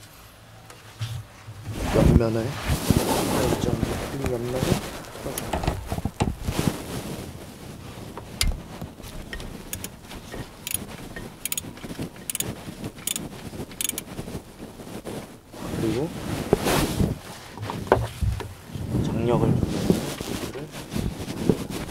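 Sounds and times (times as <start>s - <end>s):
wrench clicking on bolt: 9.3s - 9.9s, 11.4s - 11.6s, 12.2s - 12.4s, 13.8s - 14.0s.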